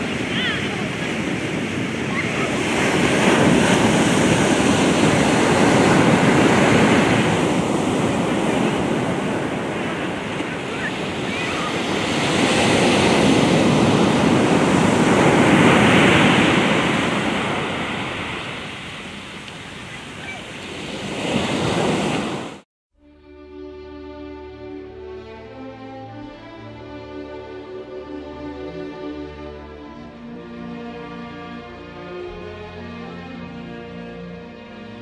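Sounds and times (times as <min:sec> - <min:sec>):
ocean surf breaking: 0:00.0 - 0:22.6.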